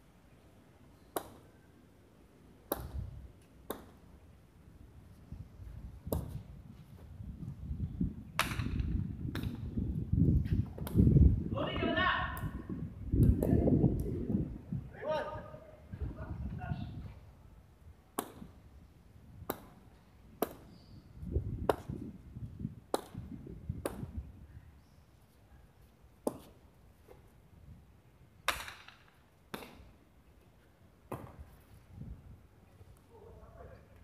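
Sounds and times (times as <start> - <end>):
ball cracking against wall: 28.5 - 29.9, 31.1 - 31.4.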